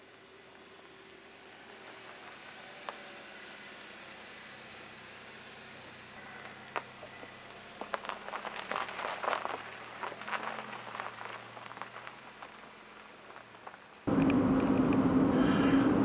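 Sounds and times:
tyres crunching on gravel: 0:00.2 - 0:14.1
faint engine hum: 0:14.1 - 0:16.0.

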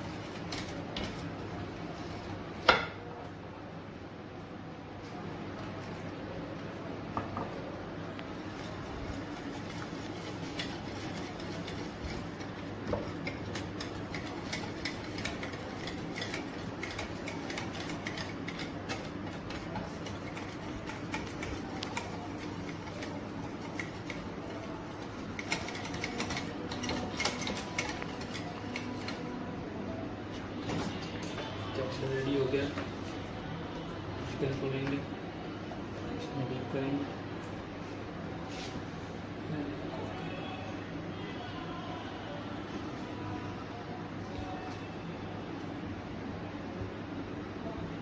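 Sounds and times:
utensil stirring in a bowl: 0:00.0 - 0:02.4, 0:08.3 - 0:29.6.

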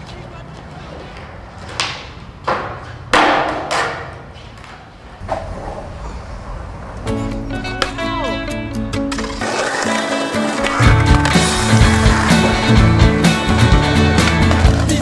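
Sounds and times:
music: 0:07.0 - 0:15.0.

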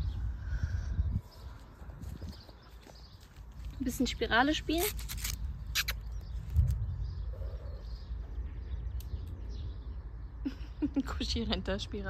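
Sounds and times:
low rumble on microphone: 0:00.0 - 0:02.7, 0:05.4 - 0:10.6
birds chirping faintly: 0:00.0 - 0:12.0.

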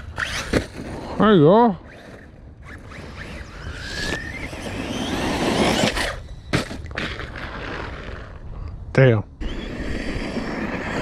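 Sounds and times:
electric motor whine: 0:01.8 - 0:06.3, 0:09.4 - 0:11.0
tires rushing on dirt: 0:02.0 - 0:08.4, 0:09.4 - 0:11.0.

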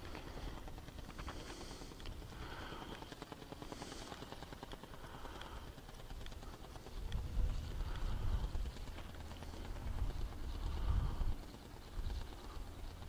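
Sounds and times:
wind buffeting microphone: 0:06.3 - 0:13.0.

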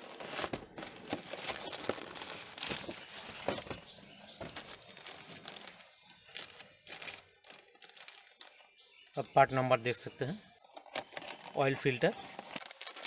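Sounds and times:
plastic wrapping crinkling: 0:00.0 - 0:03.7, 0:04.3 - 0:08.8, 0:10.8 - 0:13.0.

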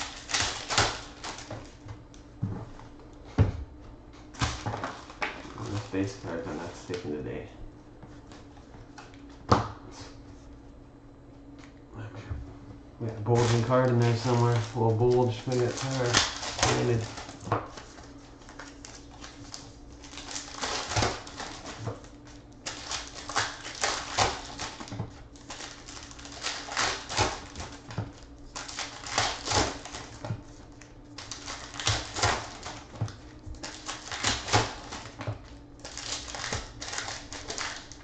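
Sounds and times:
foil wrapper crinkling: 0:00.0 - 0:01.8, 0:04.4 - 0:07.0, 0:13.2 - 0:38.0.

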